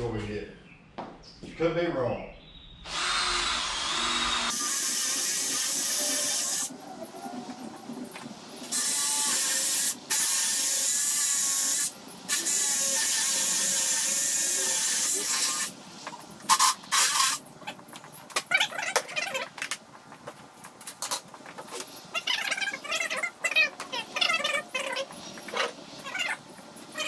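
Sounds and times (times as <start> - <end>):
power drill boring through wood: 2.9 - 6.7.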